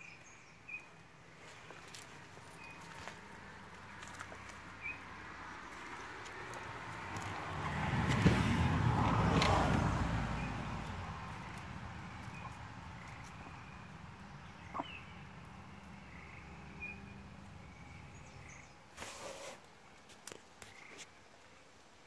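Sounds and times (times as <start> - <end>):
faint bird calls: 12.2 - 19.6.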